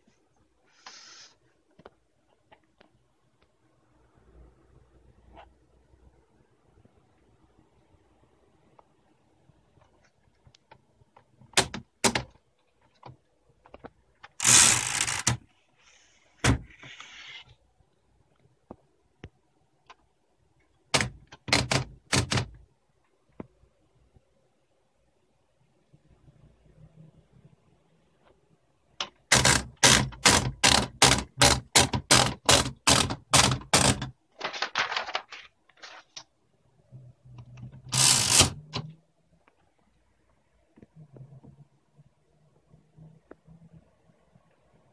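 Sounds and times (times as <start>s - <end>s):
small typewriter clicks: 14.3s - 15.4s, 20.9s - 22.5s, 29.0s - 35.2s, 37.9s - 38.8s
typewriter mechanical rasping run: 14.4s - 15.4s, 29.3s - 34.1s, 37.9s - 38.8s
typewriter clacks: 20.9s - 22.6s, 29.0s - 35.3s, 37.9s - 38.8s.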